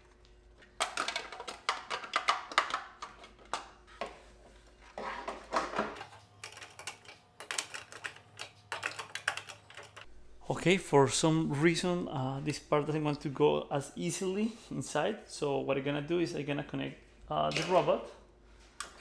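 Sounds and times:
plastic parts clicking and knocking: 0:00.6 - 0:04.1, 0:05.2 - 0:10.1.

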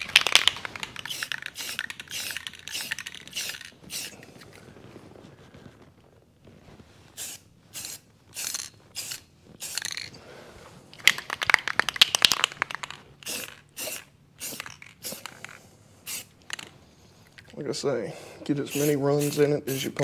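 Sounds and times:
spray can hissing: 0:00.0 - 0:04.2, 0:07.2 - 0:10.1, 0:12.7 - 0:16.6, 0:18.6 - 0:20.0.

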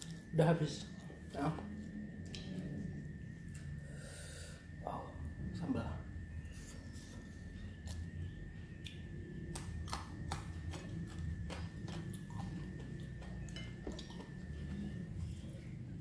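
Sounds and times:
low steady hum: 0:00.0 - 0:16.0
person chewing food: 0:06.8 - 0:16.0.

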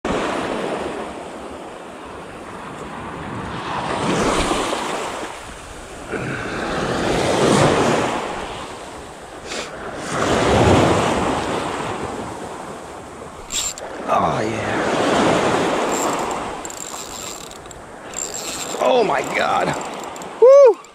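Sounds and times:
small waves breaking on beach: 0:00.1 - 0:20.9
wind on microphone: 0:02.4 - 0:14.0.

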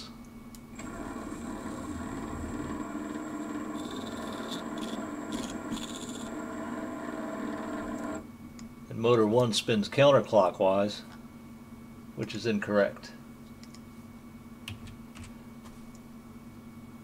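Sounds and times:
electric motor whine: 0:00.8 - 0:08.2.

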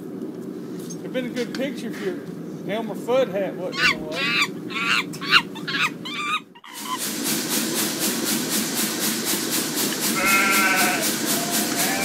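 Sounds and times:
gas burner flame roaring: 0:06.8 - 0:12.0.

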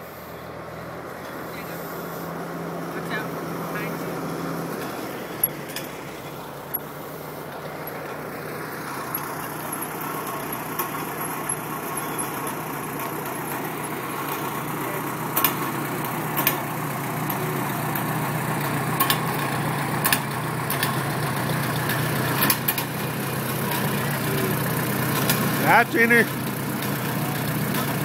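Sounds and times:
tractor engine running: 0:00.0 - 0:28.0
sharp clicks: 0:16.4 - 0:16.6, 0:20.0 - 0:21.0.

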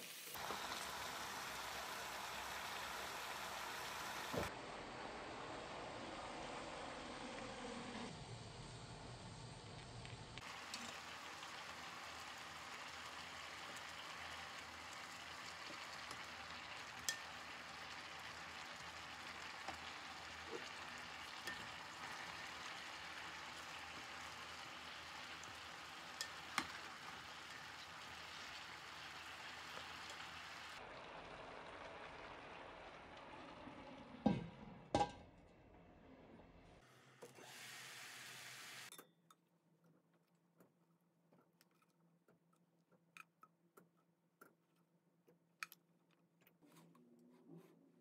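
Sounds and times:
water sizzling in frying pan: 0:00.0 - 0:07.0, 0:10.4 - 0:34.2, 0:37.4 - 0:38.9.

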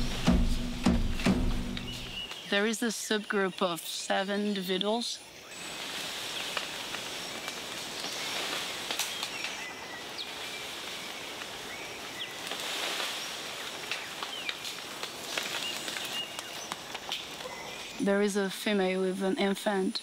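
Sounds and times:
bird chirps: 0:00.0 - 0:03.6
steady high hiss: 0:00.0 - 0:20.0.

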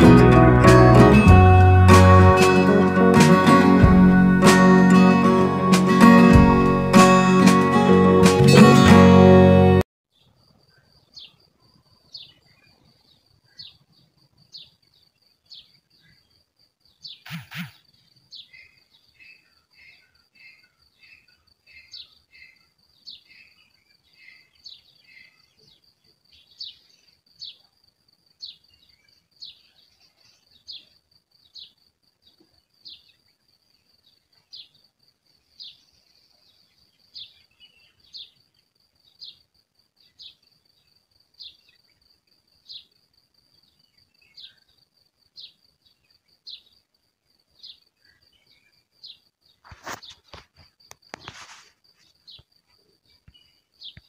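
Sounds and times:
high insect trill: 0:14.2 - 0:54.0
birds chirping: 0:17.0 - 0:25.8.

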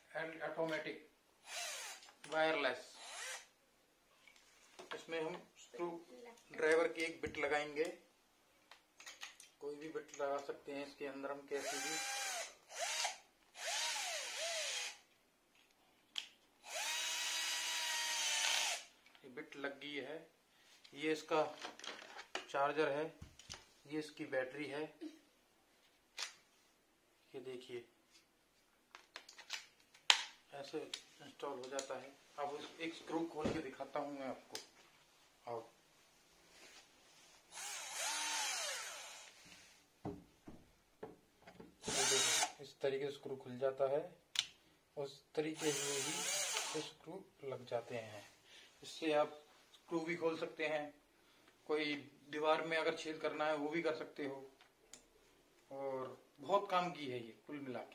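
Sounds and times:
cordless drill motor whirring: 0:01.4 - 0:02.1, 0:03.0 - 0:03.5, 0:11.6 - 0:15.0, 0:16.6 - 0:18.9, 0:37.5 - 0:39.4, 0:41.8 - 0:42.6, 0:45.6 - 0:46.9
drill click: 0:37.6 - 0:39.3, 0:41.8 - 0:42.6, 0:45.6 - 0:46.8.

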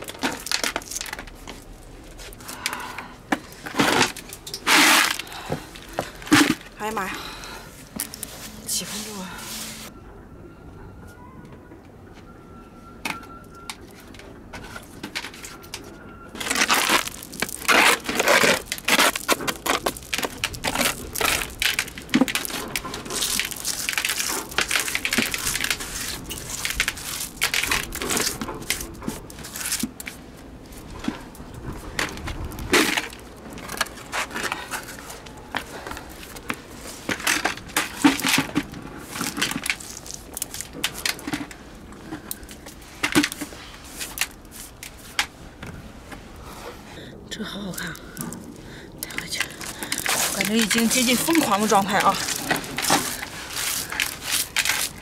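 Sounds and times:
snails rattling into bucket: 0:16.4 - 0:30.2, 0:36.3 - 0:41.6, 0:49.0 - 0:55.0.

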